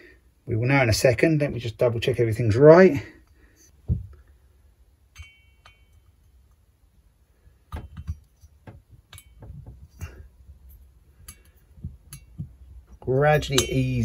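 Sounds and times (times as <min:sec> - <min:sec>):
light metal clicks and taps: 0:07.7 - 0:14.0.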